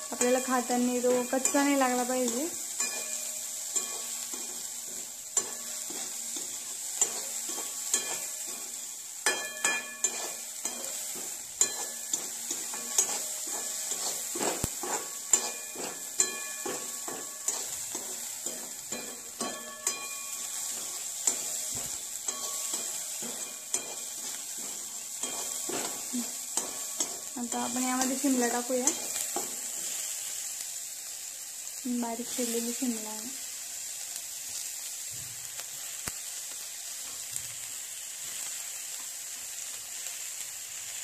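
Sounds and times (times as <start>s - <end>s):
spatula scraping and knocking pan: 0.0s - 30.3s
onion sizzling in hot oil: 0.0s - 41.0s.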